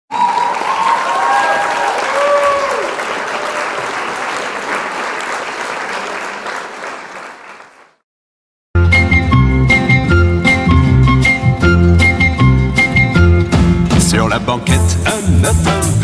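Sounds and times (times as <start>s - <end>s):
crowd applauding: 0.1s - 8.0s.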